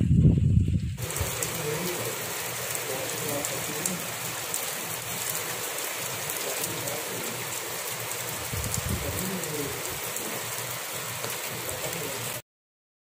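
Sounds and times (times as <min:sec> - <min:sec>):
low rumble: 0:00.0 - 0:01.0
rain on concrete rooftop: 0:00.0 - 0:12.4.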